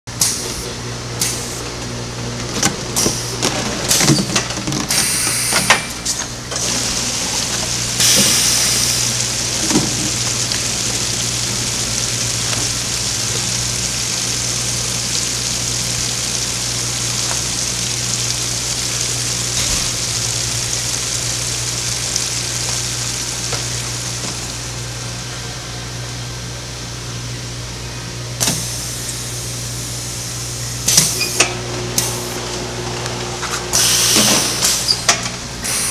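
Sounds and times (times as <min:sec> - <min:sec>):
machine hum: 0:00.1 - 0:35.9
plastic jugs clattering: 0:02.4 - 0:04.9, 0:09.1 - 0:10.9
liquid filling hiss: 0:04.9 - 0:25.2, 0:28.4 - 0:32.4, 0:33.4 - 0:35.9.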